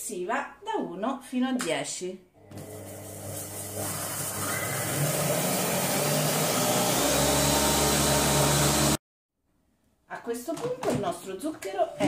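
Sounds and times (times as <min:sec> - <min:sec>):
food processor motor whirring: 0:02.4 - 0:09.0.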